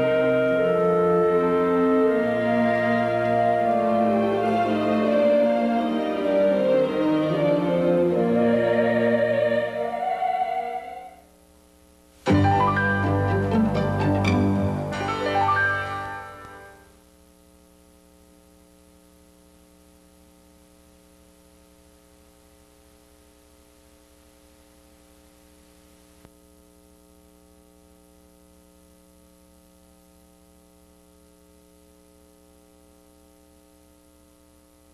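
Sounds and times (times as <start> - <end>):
closing music: 0.0 - 10.9, 12.2 - 16.9
faint electrical mains hum: 0.0 - 34.9.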